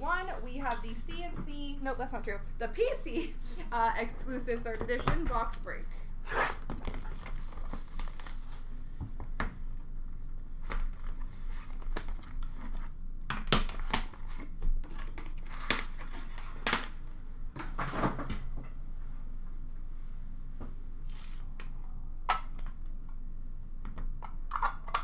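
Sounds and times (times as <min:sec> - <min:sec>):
cardboard box being unwrapped: 0:06.4 - 0:08.7.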